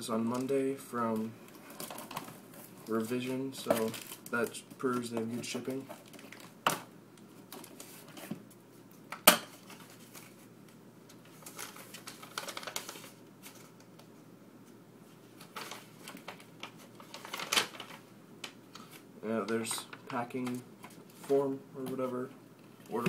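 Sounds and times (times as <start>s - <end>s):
paper rustling: 1.1s - 6.6s, 9.6s - 10.5s, 11.2s - 14.1s, 15.2s - 21.5s.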